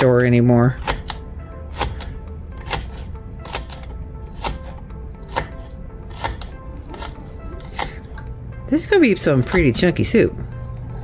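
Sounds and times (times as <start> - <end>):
knife chopping on cutting board: 2.6 - 8.0.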